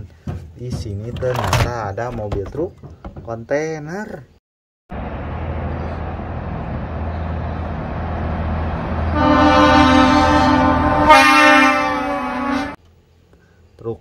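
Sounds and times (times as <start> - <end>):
diesel truck engine running: 4.9 - 11.0
truck air horn blast: 9.1 - 12.8.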